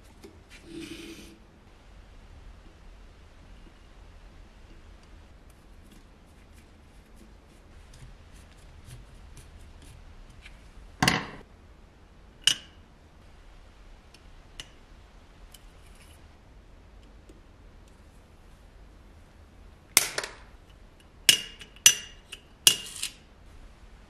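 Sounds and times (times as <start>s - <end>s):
hand tools clicking and tapping: 21.0s - 23.1s.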